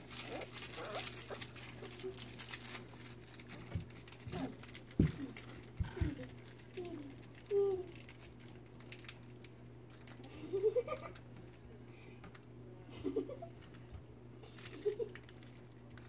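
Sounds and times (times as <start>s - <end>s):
puppies whining: 0.0s - 2.5s
puppy claws scratching on wood: 0.0s - 6.1s.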